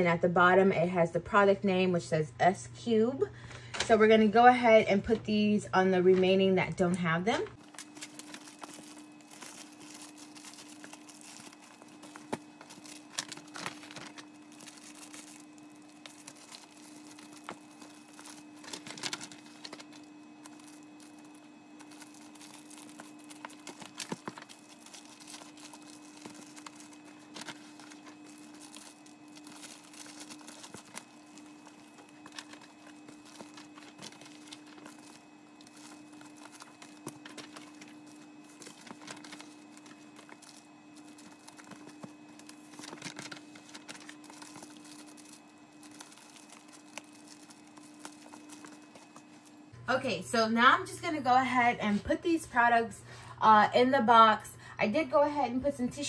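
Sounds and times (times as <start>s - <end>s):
faint steady hum: 0.0s - 56.0s
plastic wrappers crinkling: 7.6s - 49.7s.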